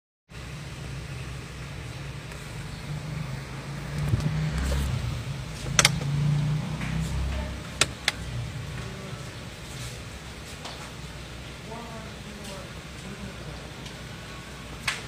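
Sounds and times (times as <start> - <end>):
car cabin rumble: 3.8 - 6.5, 7.3 - 8.3
sharp clicks: 5.7 - 6.1.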